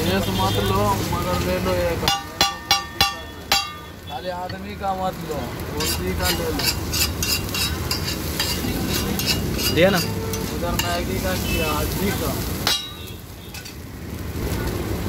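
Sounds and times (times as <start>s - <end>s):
egg sizzling: 0.0s - 15.0s
spatula clack: 2.1s - 3.9s, 5.8s - 11.0s, 12.6s - 13.8s
metal spatula scraping on griddle: 5.8s - 13.8s.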